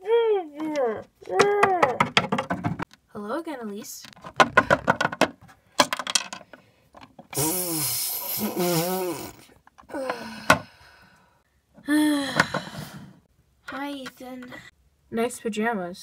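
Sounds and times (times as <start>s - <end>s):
person groaning: 7.4s - 10.4s.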